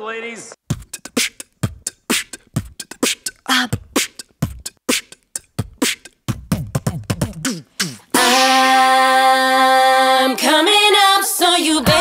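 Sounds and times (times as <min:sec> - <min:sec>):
beatboxing: 0:00.6 - 0:08.8
a cappella chord of voices: 0:08.1 - 0:12.0.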